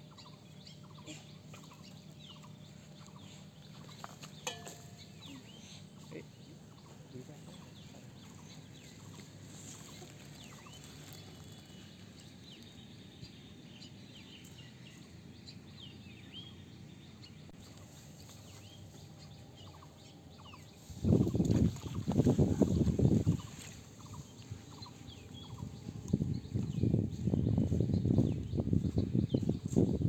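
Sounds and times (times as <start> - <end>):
faint bird chirps: 0.0 - 16.7.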